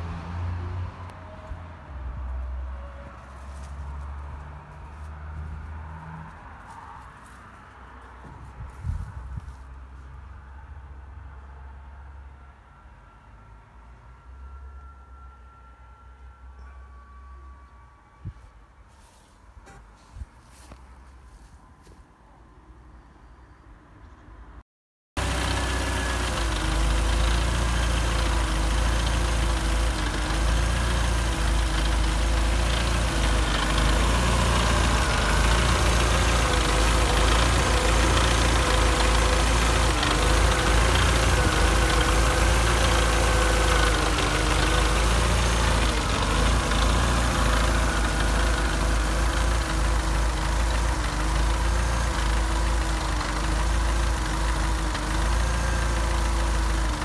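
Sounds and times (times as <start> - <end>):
car engine idling: 25.2 - 57.0
engine whine: 25.2 - 57.0.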